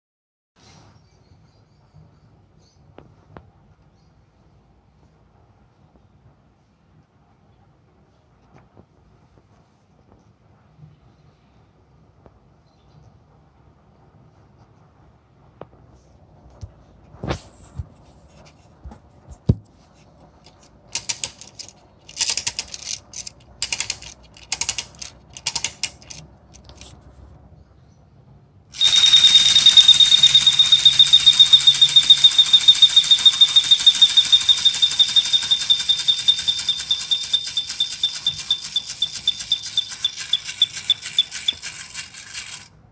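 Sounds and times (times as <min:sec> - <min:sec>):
clockwork key winding clicks: 0:20.5 - 0:26.8, 0:28.8 - 0:42.7
mechanical whirr: 0:28.7 - 0:42.7
toy bird whistle trilling: 0:28.8 - 0:42.7.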